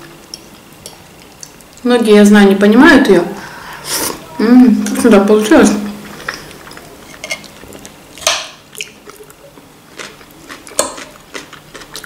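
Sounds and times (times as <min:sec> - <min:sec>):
close-up chewing: 0:08.7 - 0:12.0.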